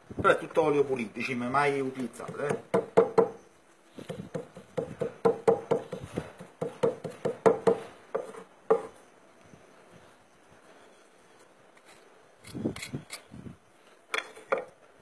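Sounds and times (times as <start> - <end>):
hammer pounding on marble: 2.2 - 3.4, 4.1 - 8.9.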